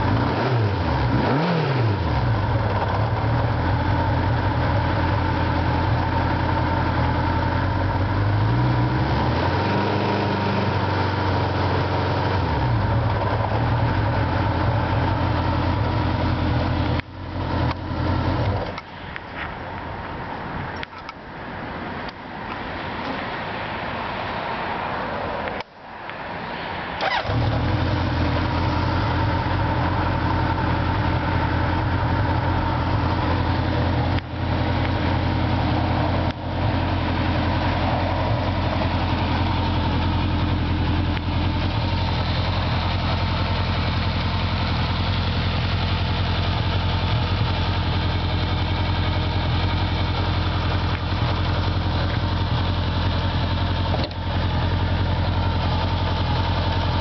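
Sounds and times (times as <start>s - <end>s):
motorcycle engine idling: 2.0s - 9.0s, 10.7s - 18.9s, 27.0s - 57.0s.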